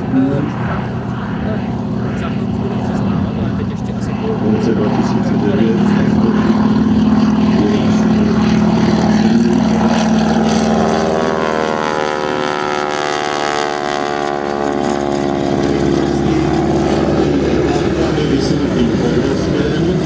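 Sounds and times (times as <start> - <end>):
model propeller plane engine: 0.0 - 20.0.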